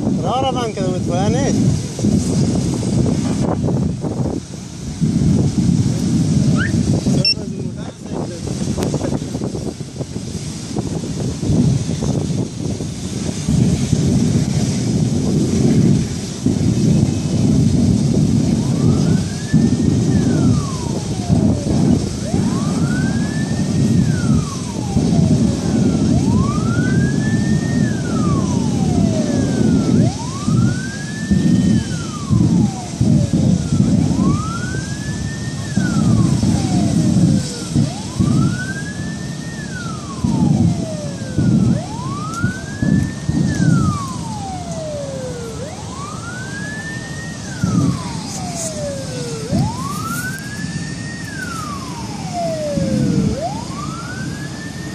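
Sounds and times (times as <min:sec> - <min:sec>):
emergency siren wailing: 0:00.0 - 0:54.9.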